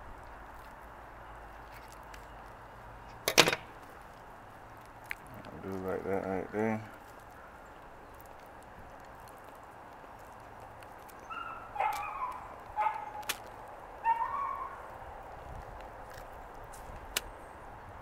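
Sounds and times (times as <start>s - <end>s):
dog barking: 11.3s - 13.2s, 14.0s - 14.8s.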